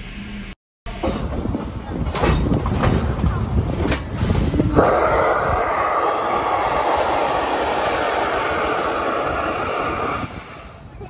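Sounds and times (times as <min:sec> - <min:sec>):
steam hissing from valve: 0:04.2 - 0:10.9.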